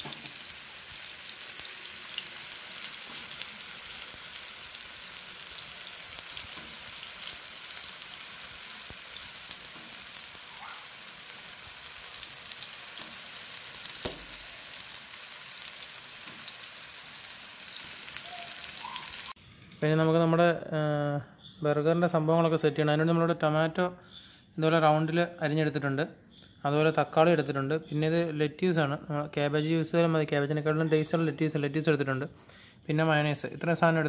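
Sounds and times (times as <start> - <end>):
burger sizzling in oil: 0.0 - 19.4.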